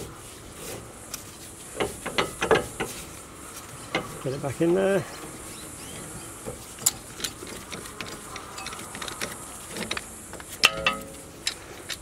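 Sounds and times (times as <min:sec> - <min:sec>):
metal brake parts clicking: 0:01.8 - 0:04.5, 0:05.1 - 0:12.0
metallic clank: 0:05.1 - 0:12.0.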